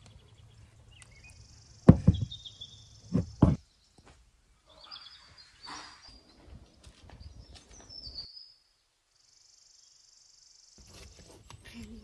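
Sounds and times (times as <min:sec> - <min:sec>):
faint bird chirps: 0:00.0 - 0:12.0
dull knocks: 0:01.9 - 0:02.4, 0:03.1 - 0:03.6.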